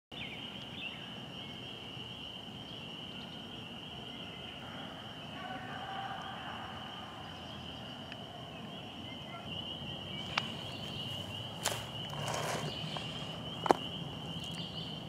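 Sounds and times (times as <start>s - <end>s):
insects trilling: 0.2s - 15.0s
grass and clothing rustling: 10.1s - 15.0s.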